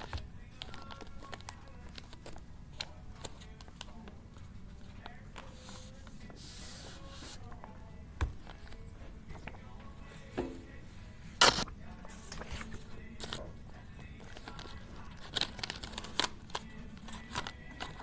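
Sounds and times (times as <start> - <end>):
paper rustling: 0.0 - 7.7, 11.4 - 18.0.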